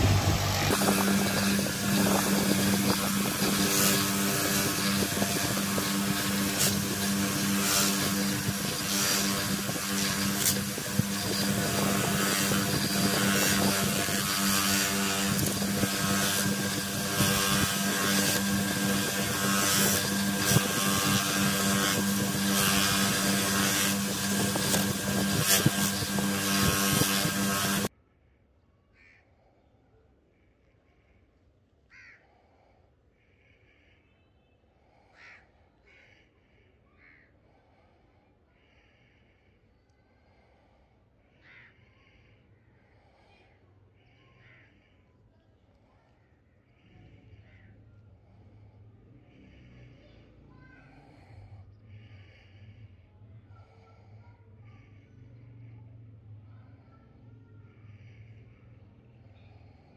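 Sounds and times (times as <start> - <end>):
bench grinder motor hum: 0.0 - 27.9
grinding wheel hiss on steel: 0.0 - 27.9
faint bird calls: 28.9 - 37.8, 41.2 - 43.4, 44.0 - 48.6.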